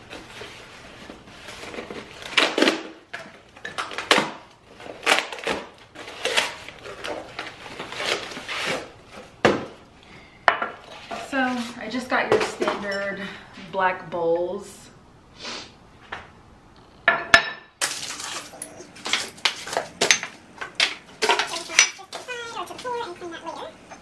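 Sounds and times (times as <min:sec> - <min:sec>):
cardboard rustling and tearing: 0:04.7 - 0:09.2.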